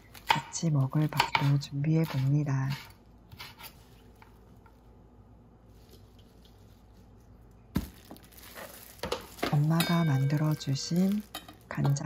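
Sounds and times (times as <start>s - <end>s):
lettuce leaves being handled: 5.6s - 11.8s.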